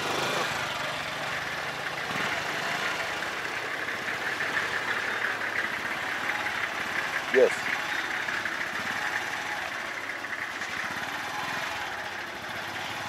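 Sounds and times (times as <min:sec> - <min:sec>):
motorcycle engine chugging: 0:00.0 - 0:13.0.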